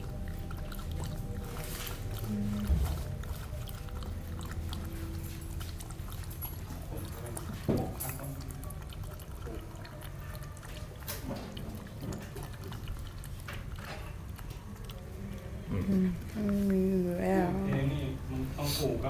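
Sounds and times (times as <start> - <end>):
dog lapping from a bowl: 0.0 - 19.0.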